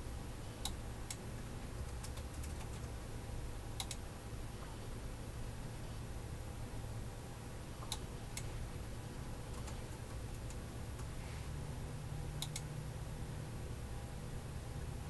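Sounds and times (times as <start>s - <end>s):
low steady hum: 0.0s - 15.0s
keyboard and mouse clicks: 1.8s - 2.9s, 3.8s - 4.0s, 7.8s - 8.5s, 9.5s - 11.1s, 12.4s - 12.7s.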